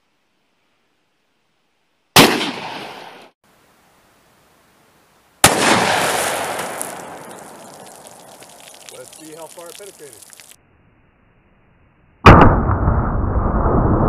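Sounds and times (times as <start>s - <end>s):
pistol shots with echo: 2.2s - 2.9s, 5.4s - 6.7s.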